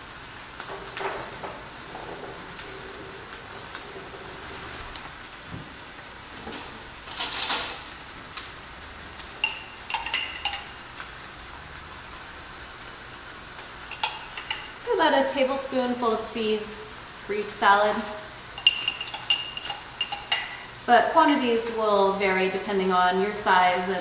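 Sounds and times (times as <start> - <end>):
chicken sizzling on a grill: 0.0 - 24.0
metal spoon clinking on glass jar: 9.4 - 10.7, 18.6 - 20.6.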